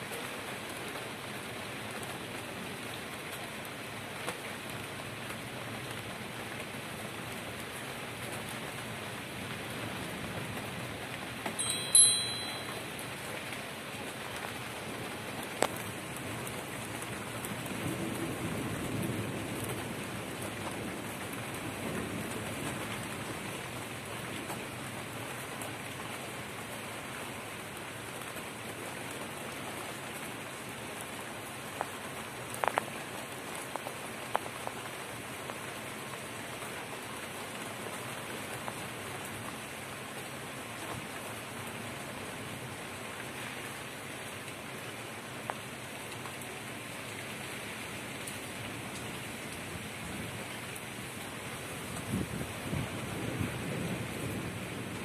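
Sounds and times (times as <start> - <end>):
steady rain falling: 0.0 - 55.0
sharp ringing clink: 11.6 - 13.0
drips and ticks: 15.5 - 17.5, 32.5 - 32.9.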